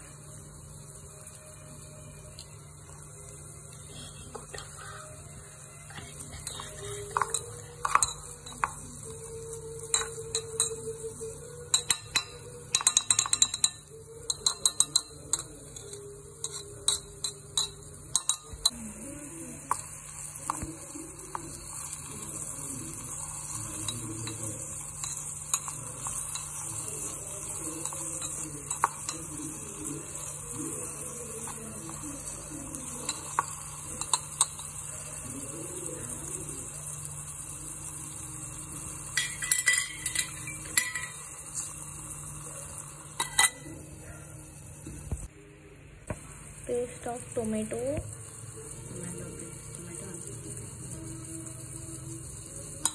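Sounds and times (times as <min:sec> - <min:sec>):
metal spatula clinking on pot: 0:06.4 - 0:09.2, 0:09.8 - 0:18.8, 0:23.3 - 0:31.6, 0:32.2 - 0:35.1, 0:39.0 - 0:41.8, 0:43.1 - 0:43.8.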